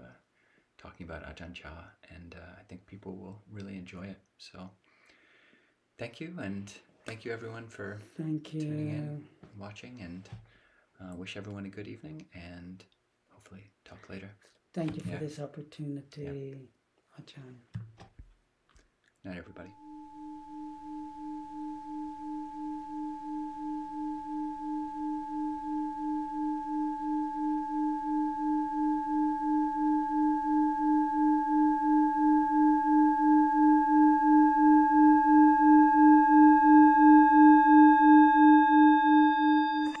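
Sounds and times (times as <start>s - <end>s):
singing bowl ringing: 19.5s - 40.0s.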